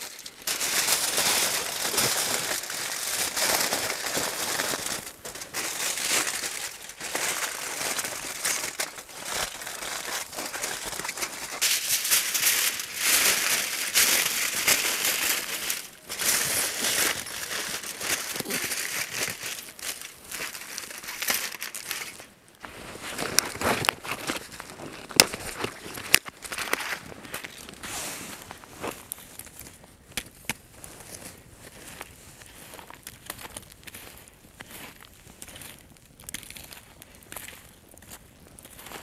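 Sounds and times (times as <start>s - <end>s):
plastic film crinkling: 0.0s - 27.8s.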